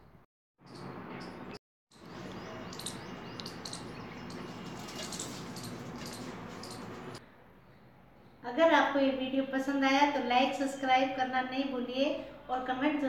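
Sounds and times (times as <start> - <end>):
small birds chirping: 0.6 - 8.4.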